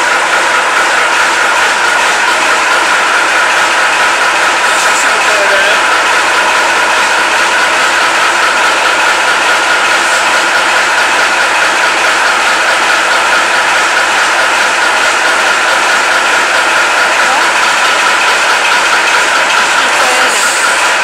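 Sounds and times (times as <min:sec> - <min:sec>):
diesel truck engine clattering: 0:00.0 - 0:21.0.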